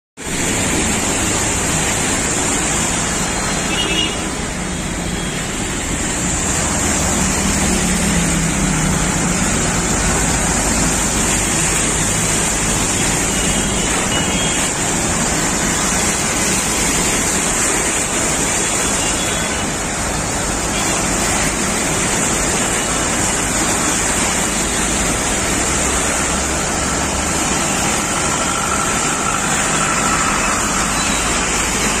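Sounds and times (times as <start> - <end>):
tyres splashing through water: 0.2 - 32.0
passing vehicle engines: 5.8 - 18.4, 20.3 - 32.0.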